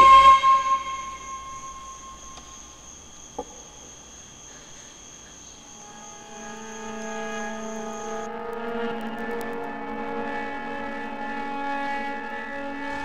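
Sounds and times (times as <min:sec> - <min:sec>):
low sustained score tones: 0:00.0 - 0:03.0, 0:05.2 - 0:13.0
high-pitched ringing tone: 0:00.0 - 0:03.4, 0:05.2 - 0:09.0.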